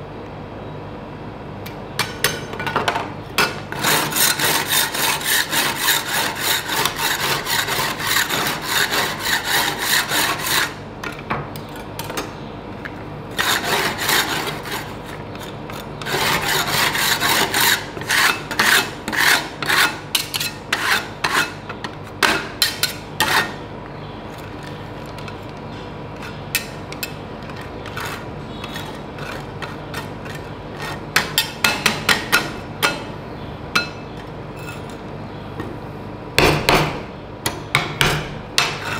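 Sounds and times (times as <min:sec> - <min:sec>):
metal scrapers clacking on steel plate: 0:03.4 - 0:10.8.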